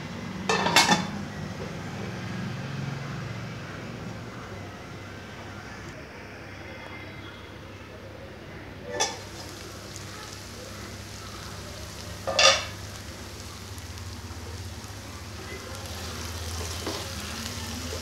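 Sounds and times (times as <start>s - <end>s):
chicken sizzling in oil: 8.8s - 18.0s.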